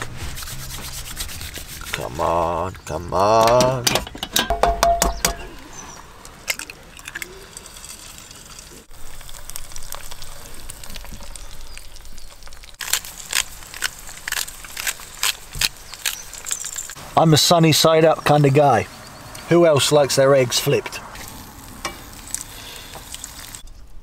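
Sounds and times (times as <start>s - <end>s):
eggs sizzling in a pan: 6.3s - 17.2s, 21.1s - 23.6s.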